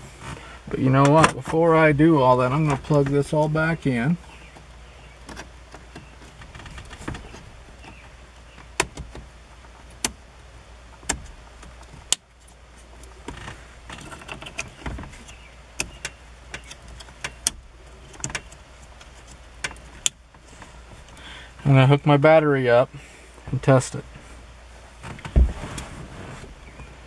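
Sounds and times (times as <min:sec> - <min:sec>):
plastic rustling and rubbing: 0:24.8 - 0:27.0.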